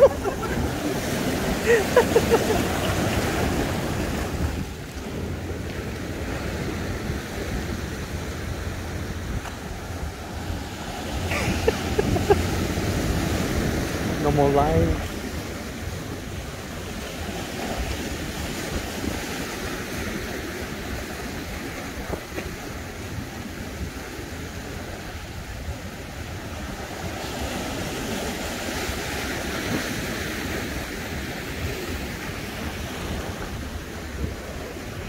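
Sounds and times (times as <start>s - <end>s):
surf breaking over rocks: 0.0s - 25.0s
wind buffeting microphone: 0.0s - 35.0s.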